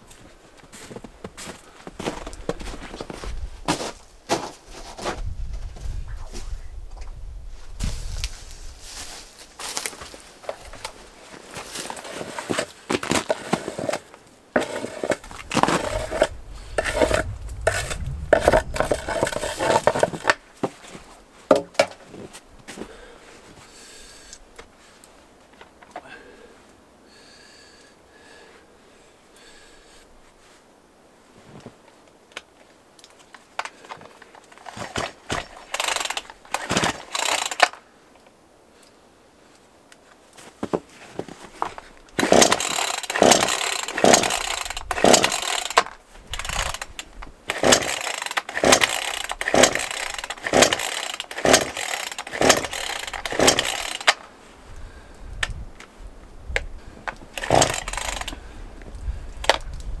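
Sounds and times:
chainsaw recoil starter pulls: 11.8 - 20.4, 33.6 - 37.8, 42.1 - 54.3, 57.3 - 58.4, 59.4 - 59.6.

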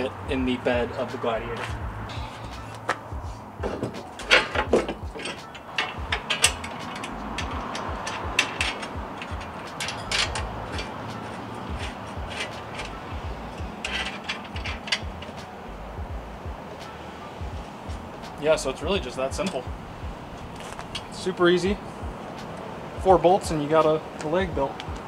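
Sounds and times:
metal bolts clicking and clanking: 3.6 - 15.6, 19.2 - 19.7, 20.4 - 21.6
ratchet-like clicking: 5.1 - 11.0.

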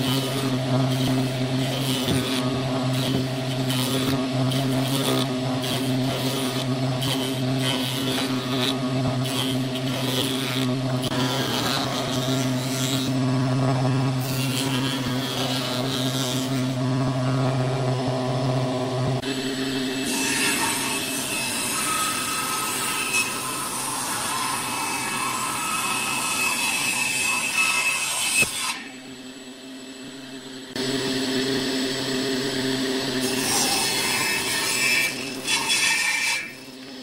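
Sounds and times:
knives rasping wood: 0.0 - 13.2
jointer motor hum: 0.0 - 35.7.

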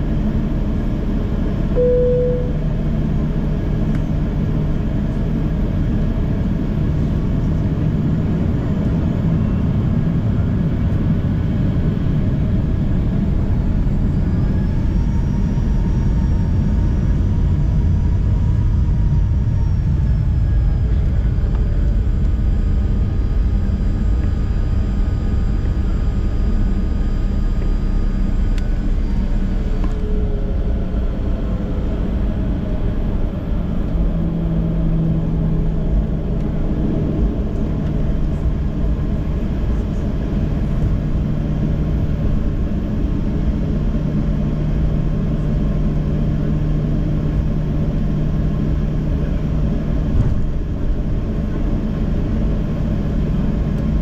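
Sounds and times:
faint engine whine: 0.0 - 54.0
jet cabin rumble: 0.0 - 54.0
brief tone: 1.7 - 3.0, 9.3 - 9.8.

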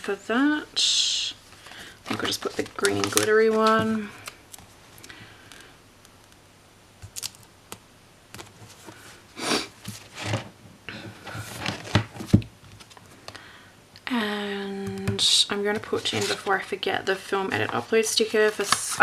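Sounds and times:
paper rustling: 1.5 - 4.7, 15.7 - 16.7, 18.3 - 19.0.

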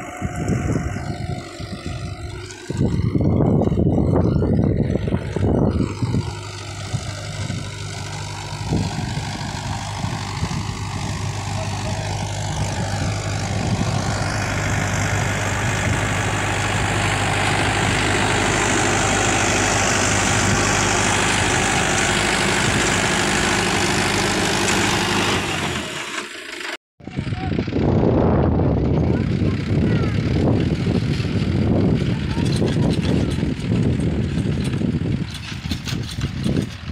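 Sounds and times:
tractor diesel engine running: 0.0 - 36.9
rotavator tilling soil hiss: 6.0 - 26.7.

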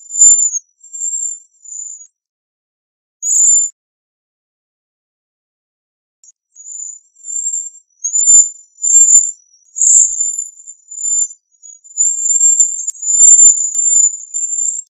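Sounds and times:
bird high thin whistled calls: 6.6 - 14.9.

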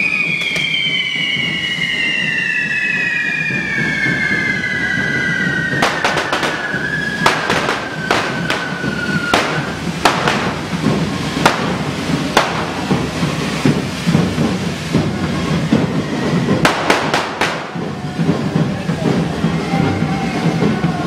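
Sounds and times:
high descending whistle: 0.0 - 9.9
firecracker bangs: 0.0 - 21.0
fountain fireworks rushing: 0.0 - 21.0.

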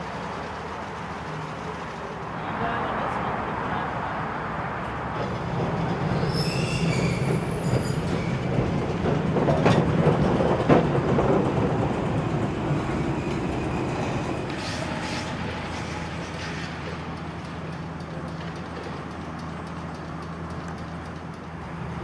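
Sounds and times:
tram wheels rumbling on rail: 0.0 - 22.0
sharp clacks over rails: 4.8 - 22.0
high wheel squeal: 6.0 - 8.8, 12.8 - 17.2.

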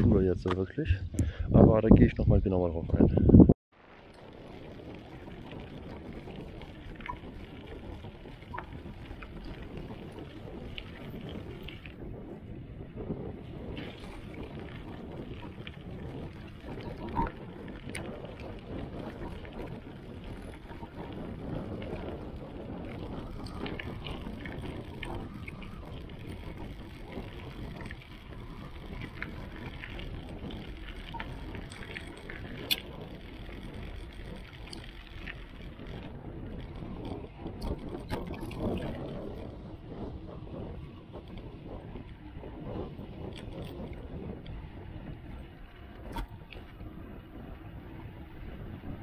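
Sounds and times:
bicycle riding rumble: 0.0 - 49.0
wind on microphone: 0.0 - 49.0
bicycle clicks and rattles: 3.8 - 49.0.

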